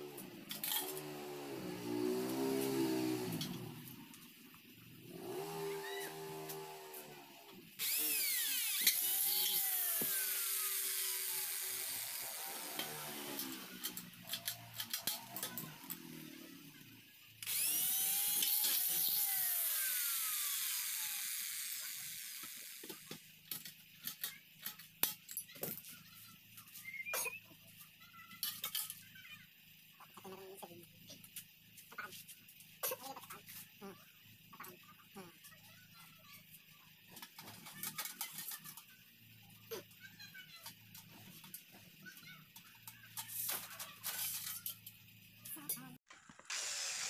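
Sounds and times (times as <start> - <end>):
electric drill boring through metal: 5.1 - 16.8, 17.4 - 23.2, 46.1 - 47.0.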